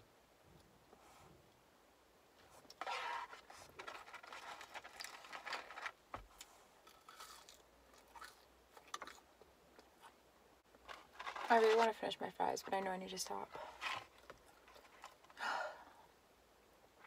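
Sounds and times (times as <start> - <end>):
chewing crunchy fries: 6.8 - 9.9.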